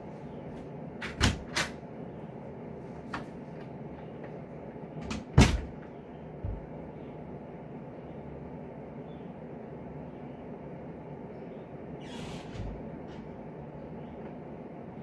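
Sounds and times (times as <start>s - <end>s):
door banging shut: 5.0s - 5.8s.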